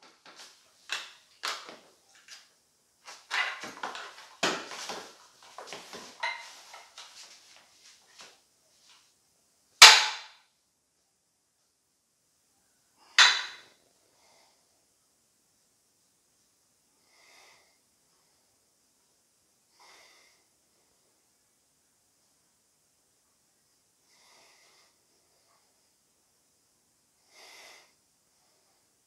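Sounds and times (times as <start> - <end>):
dumbbells clicking and rattling: 3.2 - 7.2, 13.1 - 13.7.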